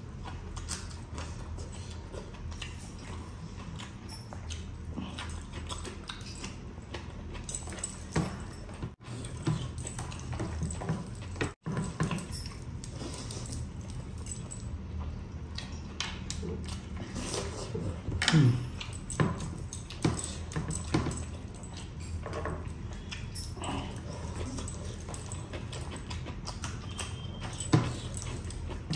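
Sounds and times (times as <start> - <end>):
chewing and lip smacking: 0.0 - 11.6, 12.7 - 20.6, 21.2 - 28.9.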